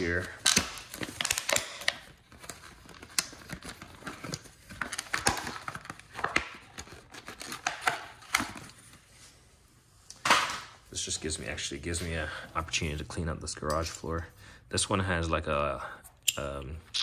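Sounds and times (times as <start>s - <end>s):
packaging rustling: 0.0s - 9.1s.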